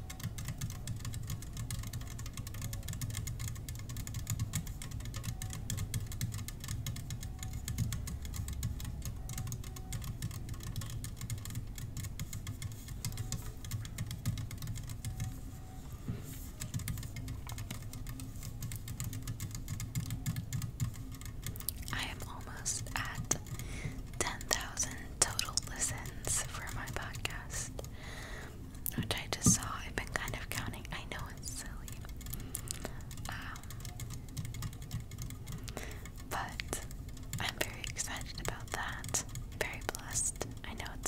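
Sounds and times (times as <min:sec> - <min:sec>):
faint ringing tones: 0:00.0 - 0:27.4
rapid tapping on small bottles: 0:00.0 - 0:41.0.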